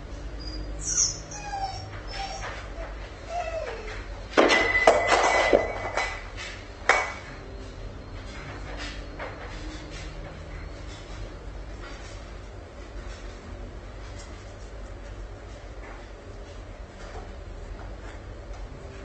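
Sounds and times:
dog whimpering: 0.3 - 4.3.

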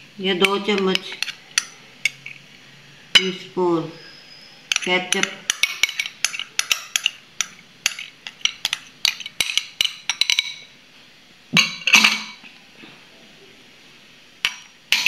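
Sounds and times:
spoon clattering: 0.4 - 2.4, 4.7 - 10.7
metal spoon clinking on glass: 4.7 - 10.6.

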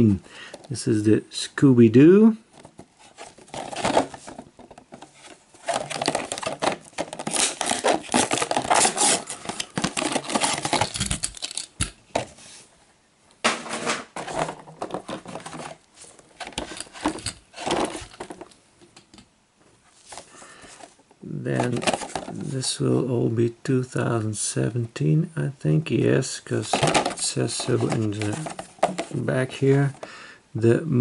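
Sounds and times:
plastic crinkling: 2.6 - 11.9
cardboard tearing: 5.2 - 11.6.

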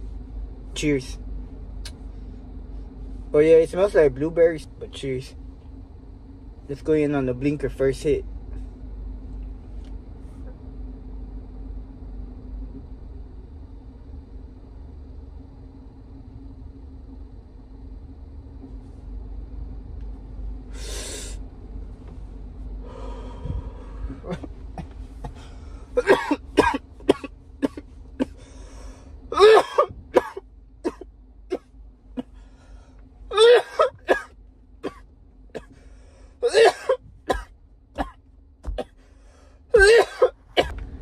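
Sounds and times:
steady low hum: 0.0 - 41.0
breathy exhale: 20.7 - 21.4, 22.8 - 24.3, 25.3 - 26.0, 28.3 - 29.2, 32.3 - 33.0, 35.7 - 36.4, 39.0 - 39.7
man coughing hard: 24.2 - 28.4, 29.3 - 32.4, 33.3 - 35.0, 35.6 - 35.8, 36.4 - 39.0, 39.7 - 40.7.

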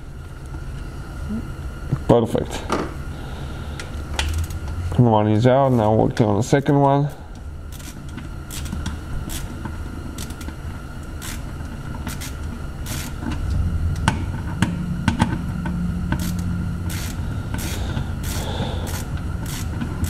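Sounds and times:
low rumble: 3.3 - 6.2, 12.2 - 20.0
ratchet clicking: 4.2 - 4.6, 7.7 - 9.5, 10.2 - 10.5, 11.2 - 13.4, 16.1 - 20.0.

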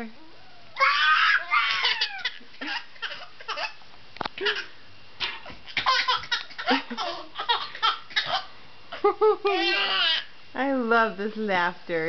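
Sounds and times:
infant laughing: 1.0 - 3.8, 5.7 - 10.2.

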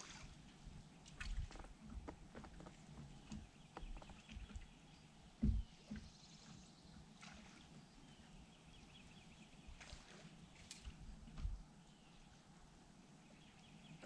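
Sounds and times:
dull thump: 5.4 - 6.1.

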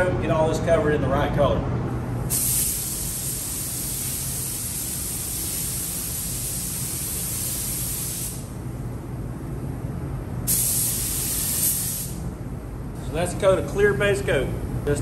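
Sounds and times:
steady low hum: 0.0 - 15.0
spray gun hissing: 2.3 - 8.5, 10.5 - 12.2.

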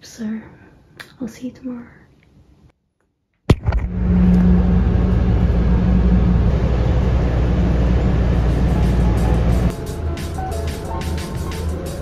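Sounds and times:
bus engine and road rumble: 3.7 - 12.0.

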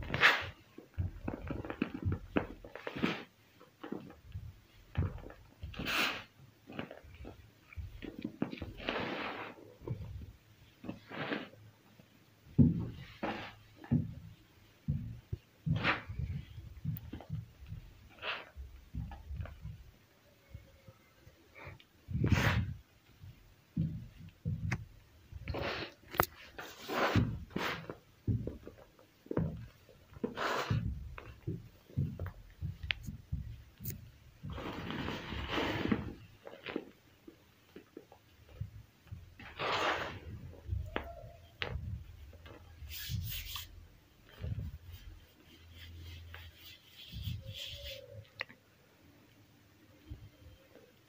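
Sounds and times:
powder sifting hiss: 0.0 - 3.5, 4.9 - 14.1, 21.5 - 24.6, 25.4 - 28.8, 29.4 - 37.0, 38.5 - 48.4
hands crushing chalk powder: 39.4 - 48.3.

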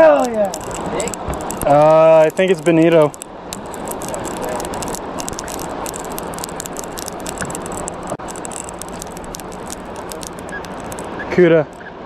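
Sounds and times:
fishing reel clicking and crackling: 0.0 - 11.9.

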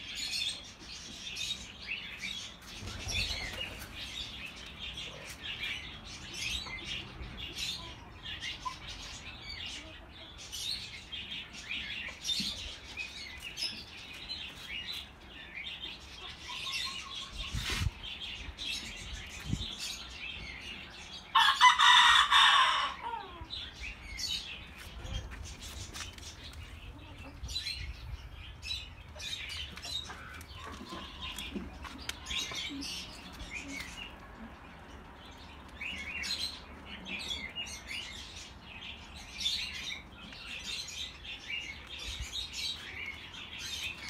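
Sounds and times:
small birds chirping: 0.0 - 21.7, 23.3 - 44.0
rooster crowing: 21.4 - 23.4.

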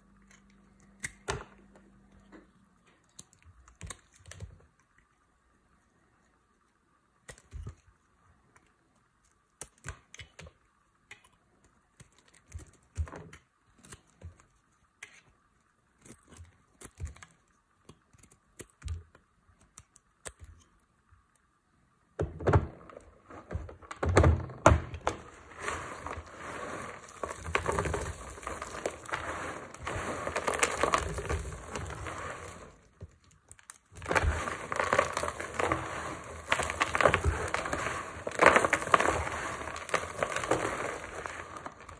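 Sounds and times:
hands crushing dry soap: 7.2 - 21.5, 22.2 - 41.9
blade shaving soap: 24.9 - 41.9.

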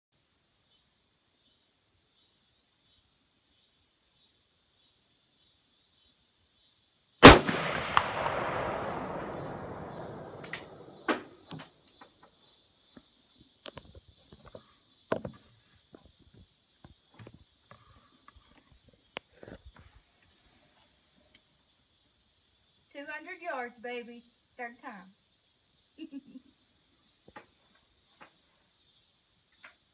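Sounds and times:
insect drone with chirps: 0.2 - 7.2, 8.2 - 29.9
rifle shot with rolling echo: 7.2 - 11.5.

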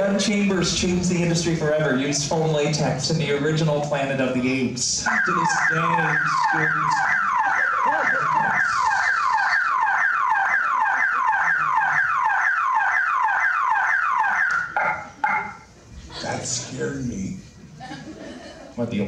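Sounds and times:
electronic alarm whooping: 5.0 - 15.7.

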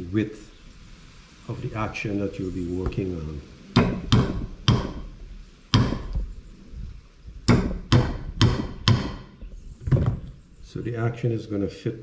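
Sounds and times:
hammer striking nails into wood: 3.8 - 5.1, 5.7 - 6.2, 7.5 - 9.3.

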